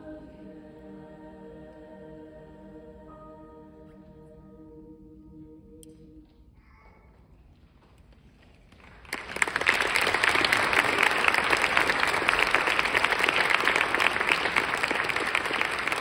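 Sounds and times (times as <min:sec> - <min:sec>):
audience applause: 0:08.7 - 0:16.0.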